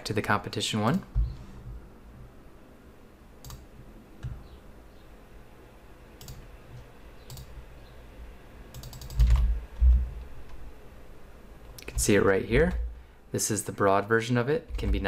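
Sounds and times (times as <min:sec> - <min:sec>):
low thumps: 0:01.1 - 0:01.8, 0:09.2 - 0:10.2
computer mouse clicks: 0:03.4 - 0:04.4, 0:06.2 - 0:07.6, 0:08.7 - 0:09.5.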